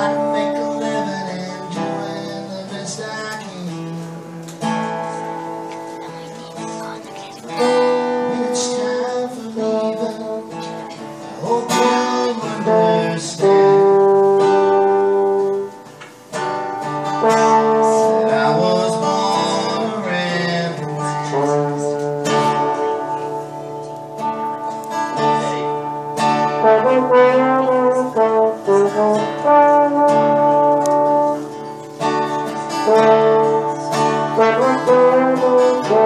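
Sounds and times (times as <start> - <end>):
acoustic guitar strumming chords: 0.0 - 36.0
trombone solo with slides: 12.5 - 15.8, 17.0 - 20.1, 20.7 - 23.7, 25.4 - 31.7, 32.6 - 36.0.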